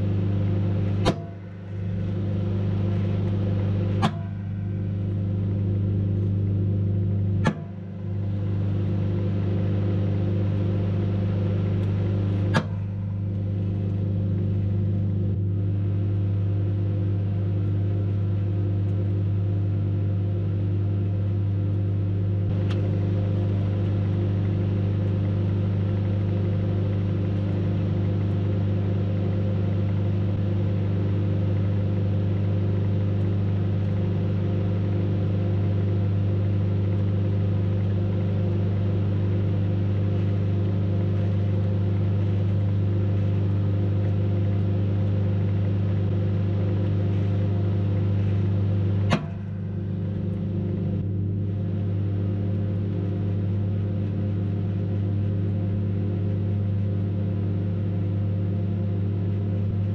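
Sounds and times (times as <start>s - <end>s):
microwave oven humming: 0.0s - 59.9s
sharp click: 1.0s - 1.4s, 3.2s - 4.5s, 7.4s - 7.8s, 11.8s - 12.9s, 49.0s - 49.5s.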